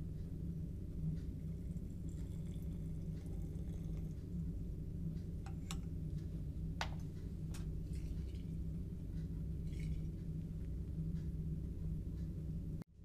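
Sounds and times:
low steady hum: 0.0 - 13.0
liquid trickling into flask: 1.4 - 4.3, 9.6 - 10.2.

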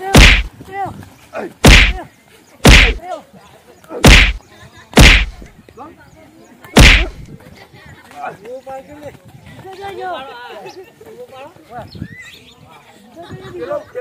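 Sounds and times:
wooden stick whacks: 0.0 - 0.5, 1.6 - 2.0, 2.6 - 3.0, 4.0 - 4.4, 5.0 - 5.5, 6.8 - 7.2.

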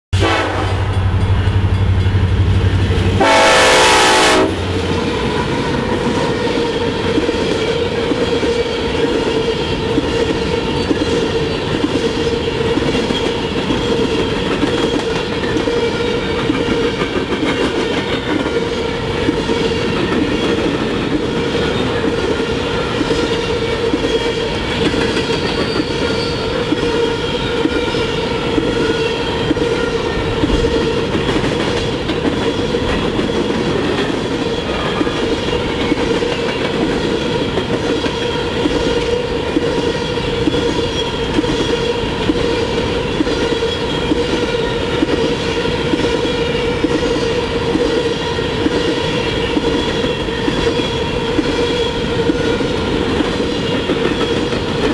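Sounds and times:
locomotive horn blast: 0.2 - 5.0
train wheels rumbling on rails: 0.2 - 54.9.

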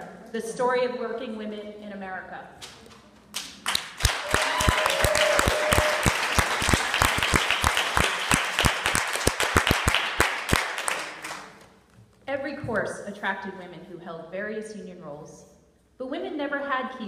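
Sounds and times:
audience applauding: 3.6 - 11.6.

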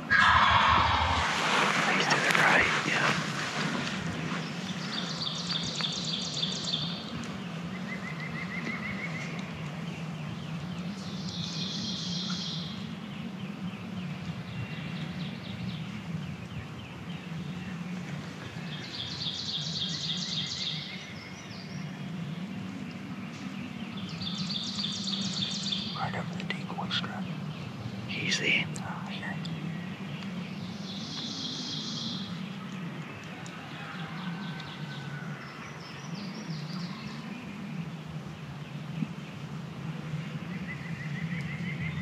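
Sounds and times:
steady low hum: 0.0 - 31.1.

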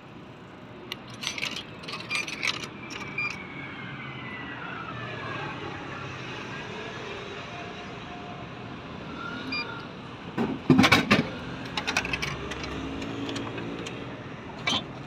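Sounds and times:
traffic hum: 0.0 - 15.0
vending machine beep: 2.4 - 3.4, 9.5 - 9.8.

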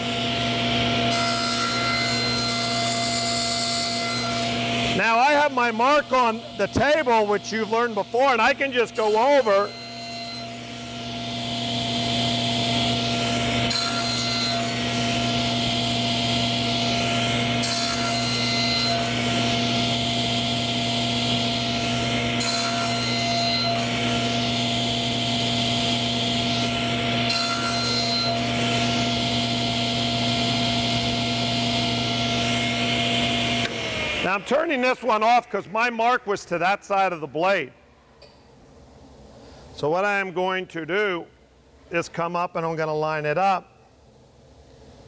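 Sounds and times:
table saw motor running: 0.0 - 35.2
saw blade cutting wood: 0.0 - 35.4.

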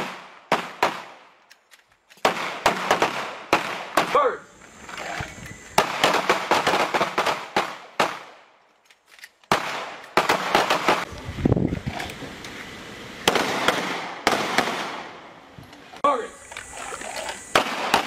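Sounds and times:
pistol shots echoing: 0.0 - 1.3, 2.2 - 4.4, 5.8 - 8.5, 9.5 - 11.1, 13.2 - 15.3, 17.5 - 18.0.

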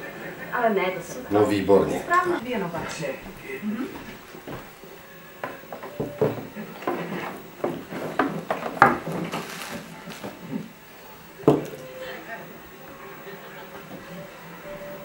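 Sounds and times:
objects knocking on wooden box: 7.6 - 9.5, 11.4 - 11.8.

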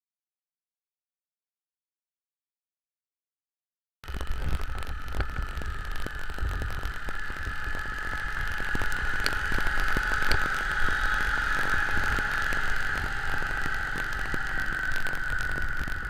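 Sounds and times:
mower running with high whine: 4.0 - 16.0.

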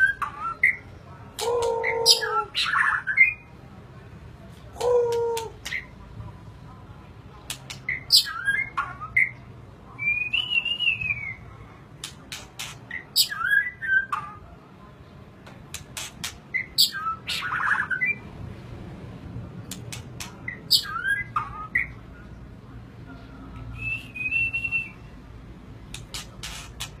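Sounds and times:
songbird singing: 0.0 - 3.6, 7.5 - 14.7, 15.7 - 18.3, 19.7 - 25.2.

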